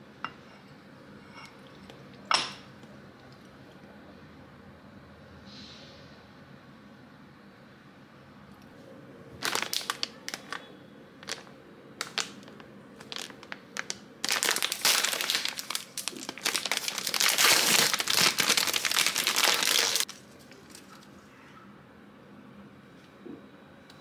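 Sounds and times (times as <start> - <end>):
plastic wrapper crinkling: 9.4 - 21.1.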